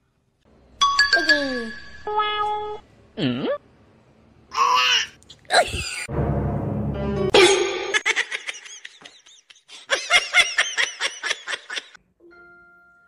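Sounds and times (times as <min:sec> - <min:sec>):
person laughing hard: 0:07.4 - 0:12.0.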